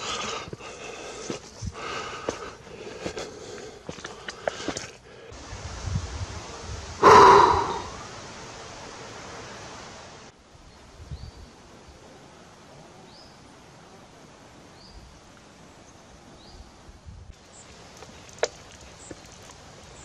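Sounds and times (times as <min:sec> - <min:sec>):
wind-like hiss: 0:05.3 - 0:20.0.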